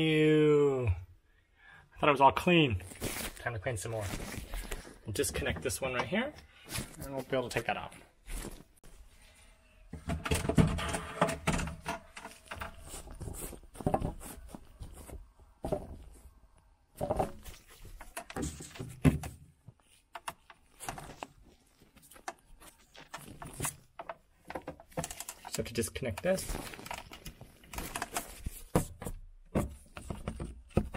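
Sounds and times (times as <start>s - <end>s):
plastic parts knocking and thunking: 9.9s - 16.2s, 17.0s - 25.6s, 26.2s - 30.9s
camera being handled: 26.5s - 28.7s.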